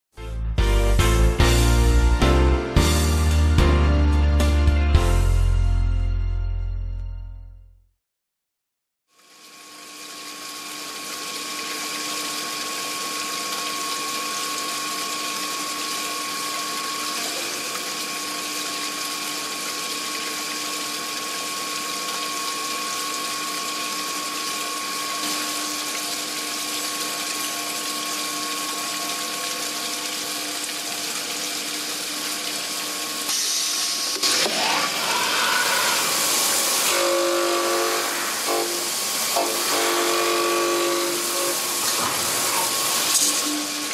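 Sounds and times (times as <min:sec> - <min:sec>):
glass grinding machine hissing: 0:09.5 - 0:26.7, 0:32.9 - 0:43.9.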